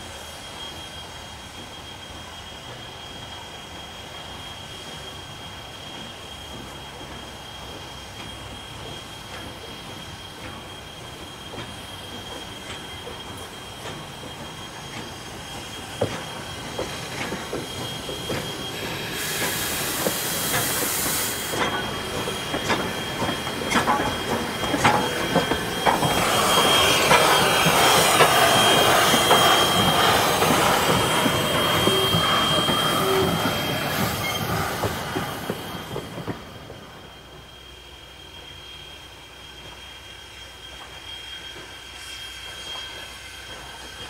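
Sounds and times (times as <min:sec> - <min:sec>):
steam hiss: 0:00.0 - 0:44.0
high-pitched wheel squeal: 0:12.0 - 0:37.4.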